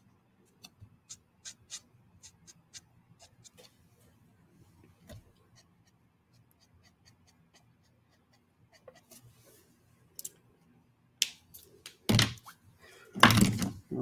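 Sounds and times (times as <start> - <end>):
marker scratching on paper: 1.1 - 3.7.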